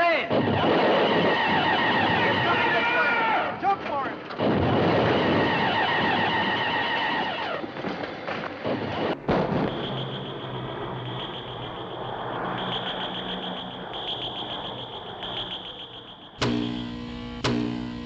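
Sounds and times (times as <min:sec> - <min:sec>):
blast noise: 0:08.9 - 0:17.8
low hum: 0:08.9 - 0:18.0
steady high electronic tone: 0:09.2 - 0:18.0
warbling electronic heat-ray tone: 0:09.2 - 0:18.0.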